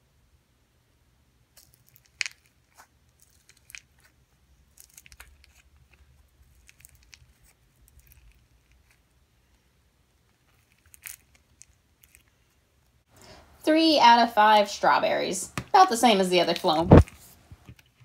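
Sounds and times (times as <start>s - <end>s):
slime crackling and popping: 1.6s - 9.0s, 10.4s - 12.3s.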